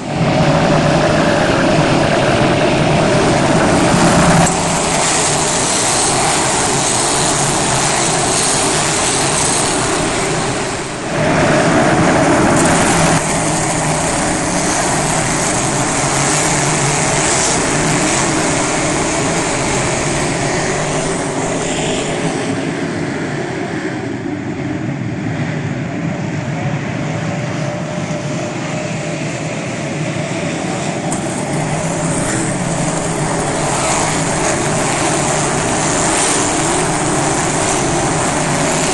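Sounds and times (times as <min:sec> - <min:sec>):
race cars passing: 0:00.0 - 0:23.2, 0:31.1 - 0:38.9.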